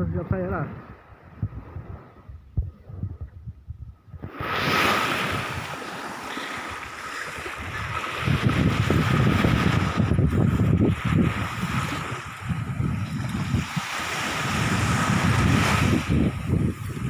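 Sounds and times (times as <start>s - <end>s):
wind buffeting microphone: 0.0s - 17.0s
small waves washing onto sand: 4.2s - 17.0s.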